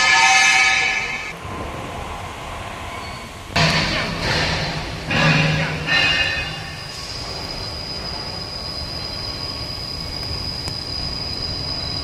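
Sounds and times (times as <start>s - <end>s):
turning roll high-pitched whine: 3.0s - 12.0s.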